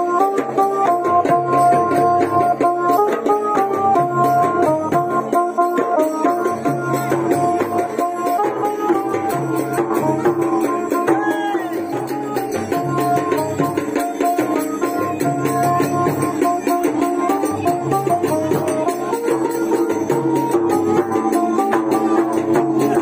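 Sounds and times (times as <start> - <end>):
barrel drum beating quick rhythm: 0.0 - 23.0.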